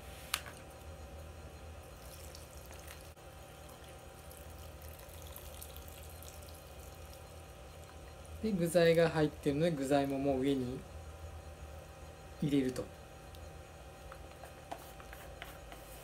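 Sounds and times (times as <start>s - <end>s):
low steady hum: 0.0s - 16.0s
liquid pouring: 2.0s - 8.4s.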